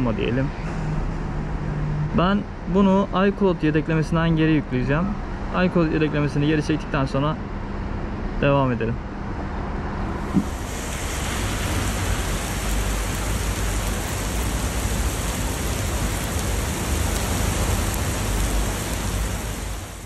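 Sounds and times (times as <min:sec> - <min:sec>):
heavy rain on pavement: 0:10.3 - 0:20.0.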